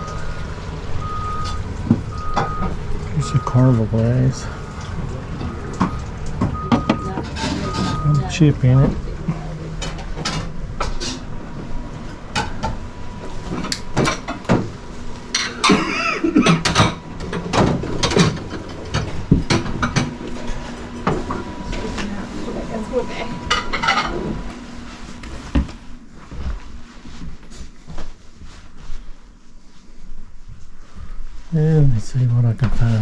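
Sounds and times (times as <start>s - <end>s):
indistinct voices: 3.0s - 10.4s, 20.3s - 24.6s.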